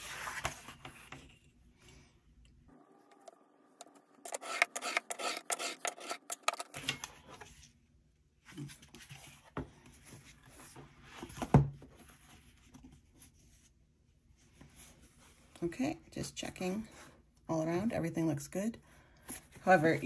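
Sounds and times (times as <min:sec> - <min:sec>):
utility knife cutting board: 0:03.8 - 0:06.9
handling of board and rulers: 0:04.2 - 0:07.5.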